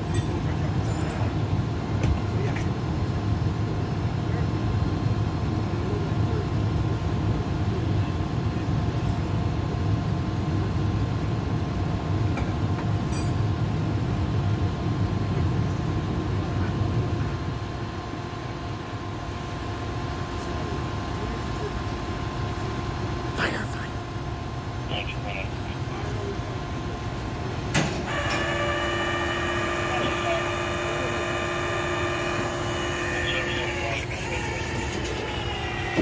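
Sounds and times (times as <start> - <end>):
faint steady whine: 12.4 - 36.0
truck engine idling: 18.5 - 36.0.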